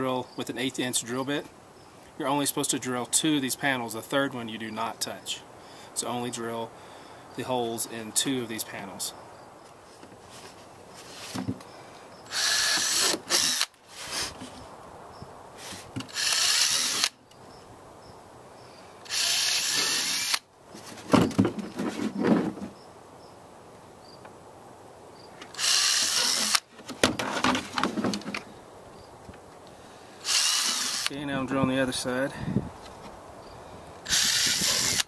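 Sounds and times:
cordless drill drilling plastic: 12.3 - 14.3, 16.1 - 17.2, 19.1 - 20.4, 25.6 - 26.7, 30.2 - 31.1, 34.1 - 35.0.

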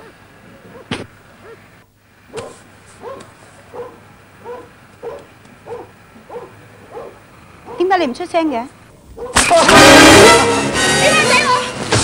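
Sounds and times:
dog barking: 0.0 - 1.7, 2.3 - 8.0, 9.2 - 9.5.

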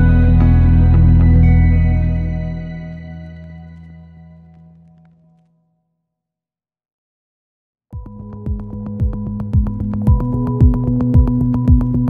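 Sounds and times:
music of long held notes: 0.0 - 5.2.

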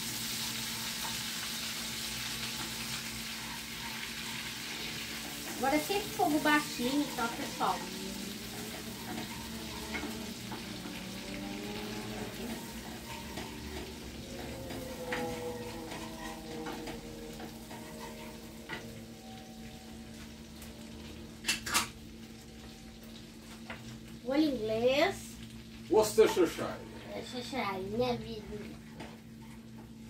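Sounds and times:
onion sizzling in butter: 0.0 - 28.6
wooden spoon scraping a pan: 2.5 - 19.0.

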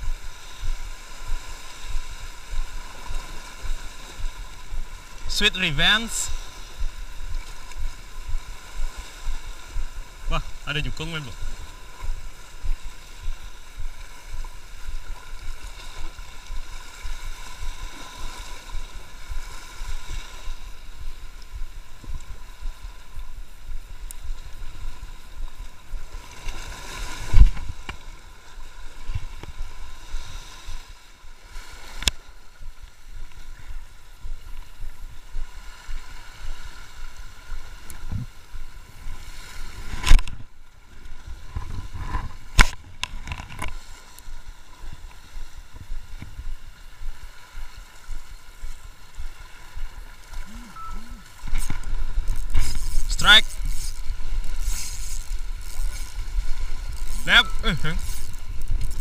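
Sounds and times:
sea water washing against rocks: 0.0 - 59.0
wind buffeting microphone: 6.3 - 10.6, 32.6 - 43.7, 44.3 - 57.2
faint steady drone: 46.4 - 59.0.

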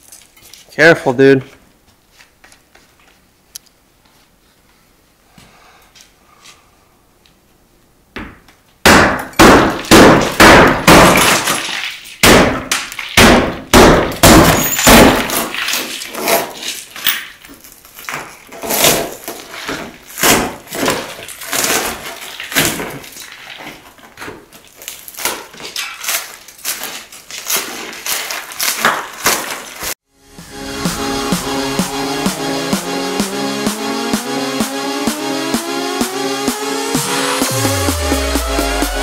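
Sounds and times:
glass being struck and broken: 8.9 - 16.1.

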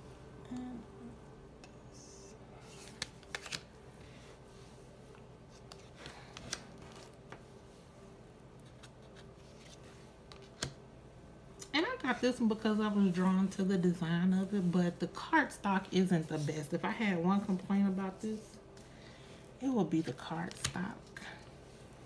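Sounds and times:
low steady hum: 0.0 - 22.0
cards sliding and tapping: 2.7 - 3.7, 8.6 - 10.8.

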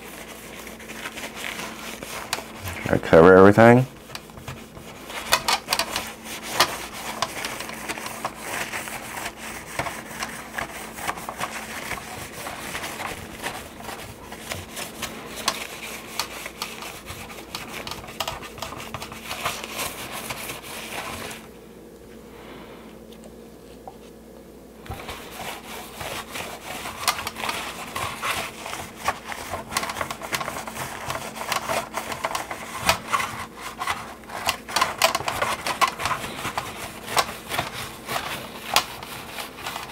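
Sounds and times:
paper napkin wiping plastic: 0.0 - 21.5, 24.8 - 39.9
small clicks and crinkles: 3.8 - 21.5, 26.9 - 39.9.

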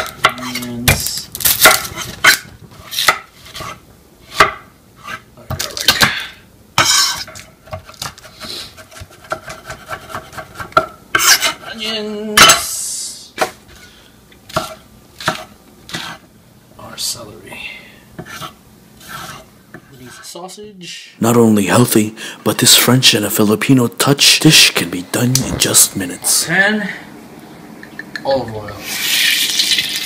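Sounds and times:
knife scraping board: 1.6 - 5.3, 6.8 - 11.6, 14.5 - 16.2, 18.2 - 19.5
knife chopping on wooden board: 8.8 - 11.6, 14.5 - 16.2.

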